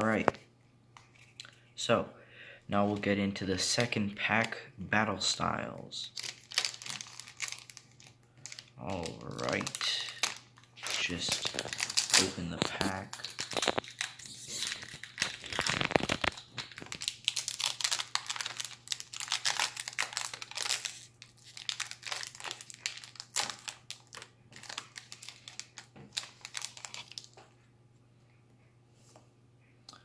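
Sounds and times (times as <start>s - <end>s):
foil wrapper tearing and crinkling: 6.1s - 27.4s.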